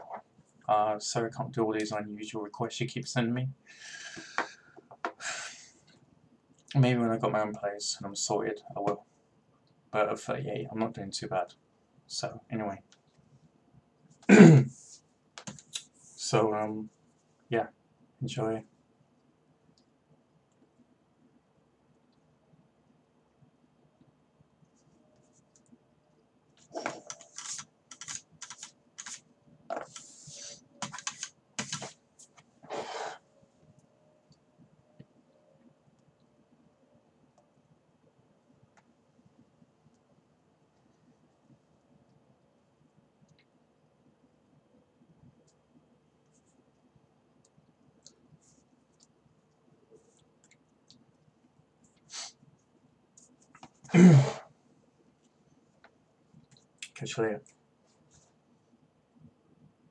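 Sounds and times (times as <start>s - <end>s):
typing on computer keyboard: 27.0s - 29.2s, 30.8s - 31.9s.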